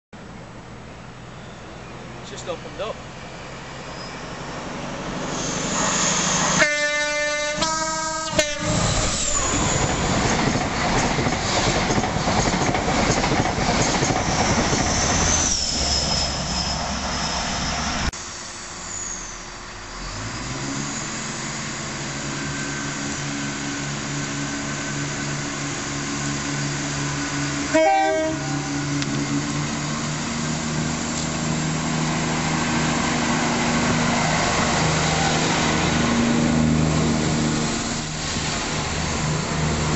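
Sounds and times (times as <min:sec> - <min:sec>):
diesel train engine hum: 0:00.2 - 0:39.9
express train rushing past: 0:00.2 - 0:39.9
two-note train horn: 0:06.5 - 0:09.0, 0:27.7 - 0:29.0.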